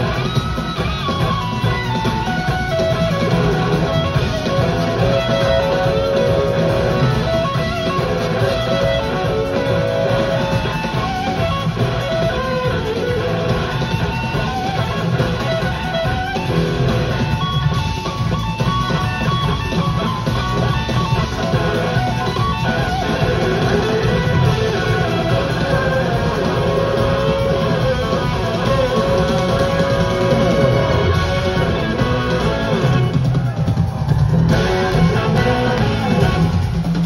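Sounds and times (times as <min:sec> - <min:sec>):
bass guitar: 0:00.0 - 0:37.0
drums: 0:00.0 - 0:37.0
electric guitar lead: 0:00.0 - 0:37.0.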